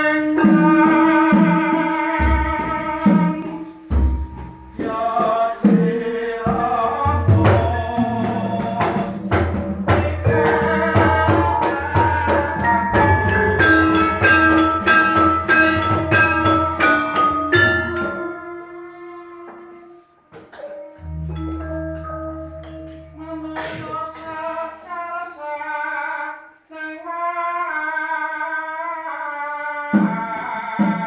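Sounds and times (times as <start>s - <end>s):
gamelan ensemble playing: 0.3s - 5.2s, 9.1s - 24.4s
hand drum strokes: 0.4s - 24.4s.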